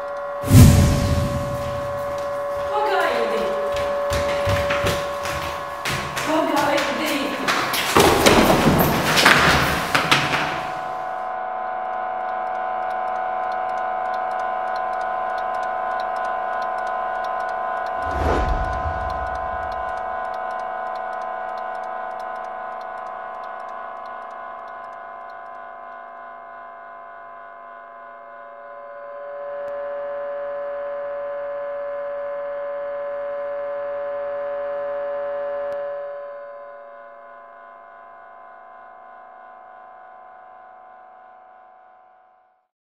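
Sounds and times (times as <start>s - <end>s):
clock-like ticking: 12.9s - 25.4s.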